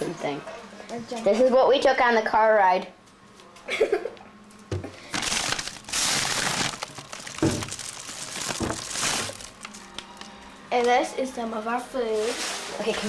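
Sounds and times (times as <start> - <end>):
plastic bags crinkling: 5.0 - 9.9.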